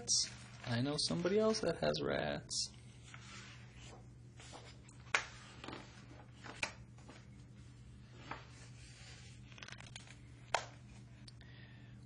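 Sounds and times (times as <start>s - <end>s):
book pages turning: 2.9s - 11.1s
paper rustles and taps: 4.4s - 7.3s, 9.5s - 10.8s.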